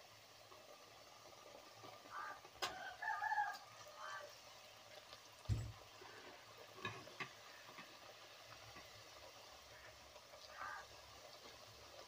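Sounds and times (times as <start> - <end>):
food deep-frying in oil: 0.0 - 12.0
dull thump: 5.5 - 5.8.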